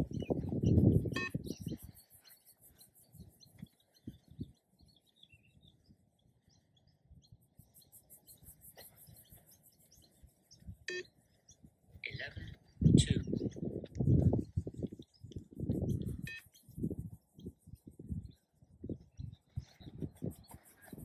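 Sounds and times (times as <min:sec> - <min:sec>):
faint bird chirps: 0:00.0 - 0:21.0
short electronic beep: 0:01.2 - 0:01.4, 0:16.2 - 0:16.4.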